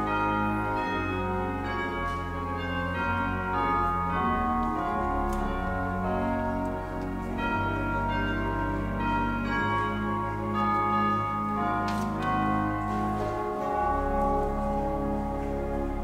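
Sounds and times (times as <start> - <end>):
church organ playing chords: 0.0 - 16.0.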